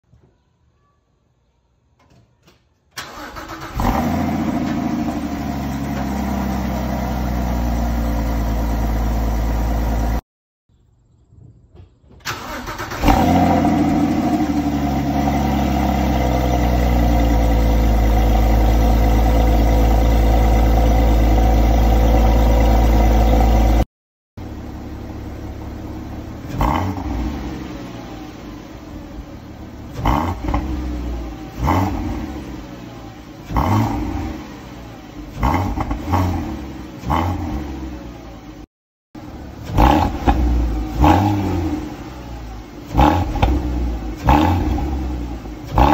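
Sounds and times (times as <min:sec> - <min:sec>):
car engine idling: 0:03.0 - 0:10.2, 0:12.2 - 0:23.8, 0:24.4 - 0:45.9
car engine throttle blips: 0:12.2 - 0:23.8, 0:24.4 - 0:45.9.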